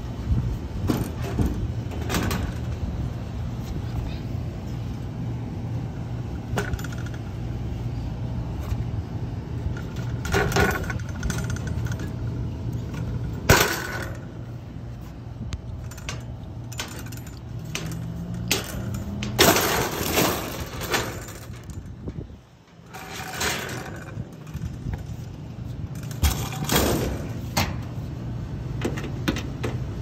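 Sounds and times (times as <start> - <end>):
low machinery hum: 0.0 - 30.0
sheet metal clinking and clattering: 9.7 - 12.2, 15.8 - 22.0, 22.7 - 25.3, 25.9 - 27.9.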